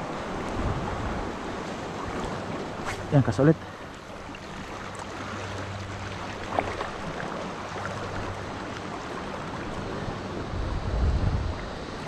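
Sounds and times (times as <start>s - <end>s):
wind buffeting microphone: 0.0s - 3.2s, 9.4s - 12.0s.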